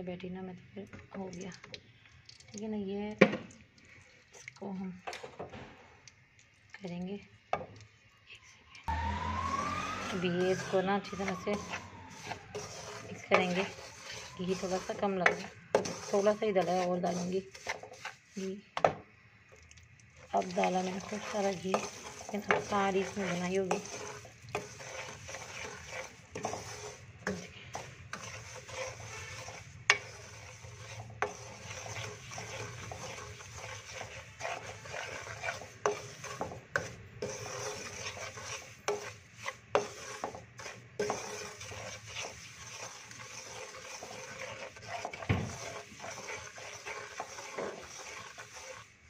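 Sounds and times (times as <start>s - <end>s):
wooden spoon scraping a pan: 8.9s - 19.0s, 19.6s - 49.0s
faint sizzle of hot fat: 19.4s - 49.0s.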